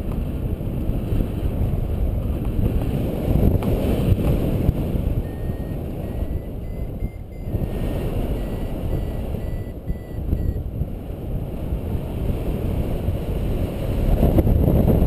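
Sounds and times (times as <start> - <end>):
wind rushing over microphone: 0.0 - 15.0
variometer beeping: 5.0 - 10.7.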